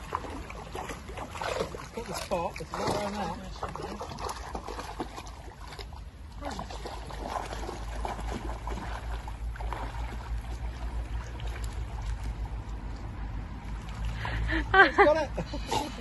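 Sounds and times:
dogs splashing in water: 0.0 - 14.6
steady low rumble: 4.6 - 16.0.

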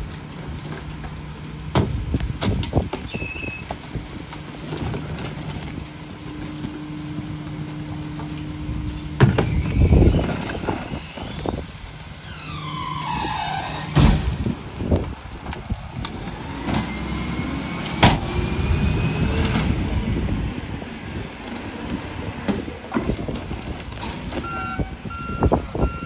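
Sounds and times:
packer falling squeal: 3.0 - 3.7, 9.0 - 14.4
trash cart banging against hopper: 13.7 - 14.6.

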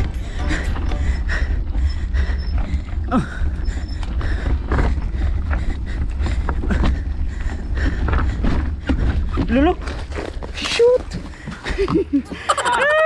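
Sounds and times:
steady low rumble: 0.0 - 12.7
bike tyres crunching over gravel: 9.4 - 11.4.

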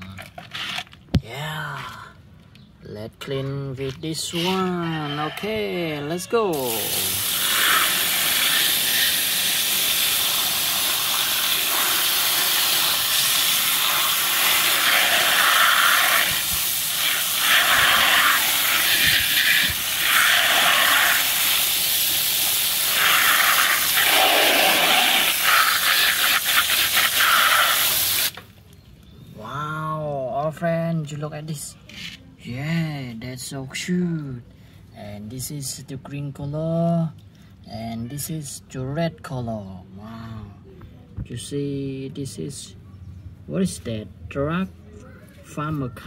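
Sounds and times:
hose spray hissing on plastic toys: 6.5 - 28.4.

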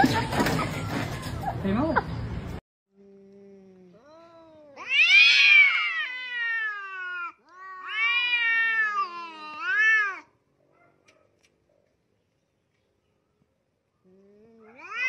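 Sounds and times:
cats yowling: 4.8 - 10.3, 14.5 - 15.0.

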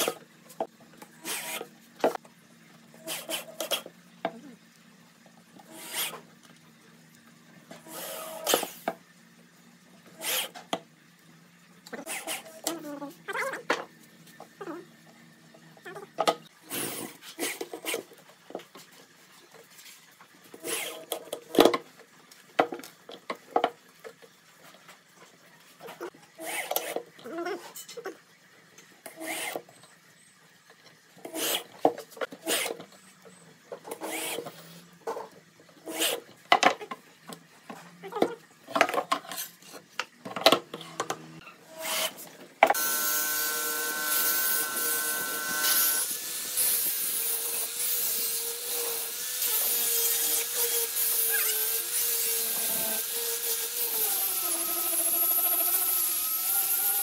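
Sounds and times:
electric drill driving screw: 7.9 - 8.8, 34.0 - 34.5, 41.7 - 57.0.

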